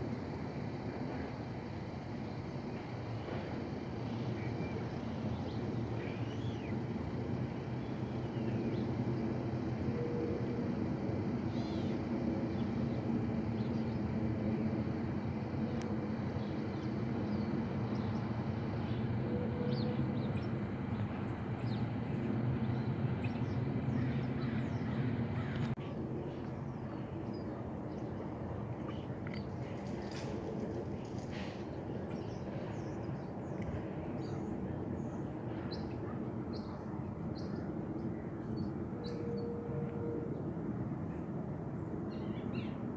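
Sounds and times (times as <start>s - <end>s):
jet airliner rumble overhead: 0.0s - 42.9s
birds chirping: 15.6s - 39.5s.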